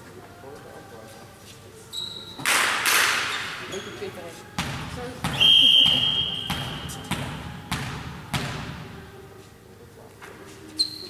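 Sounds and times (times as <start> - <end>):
ball bouncing on hall floor: 4.6 - 9.0
referee's whistle: 5.3 - 6.9.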